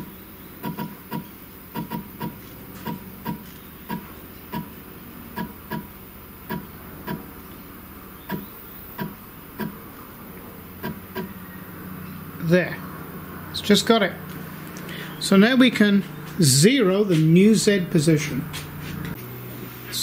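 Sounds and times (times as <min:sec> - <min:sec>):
stepper motor clicks: 0:00.0 - 0:07.3, 0:08.3 - 0:09.8, 0:10.8 - 0:11.3.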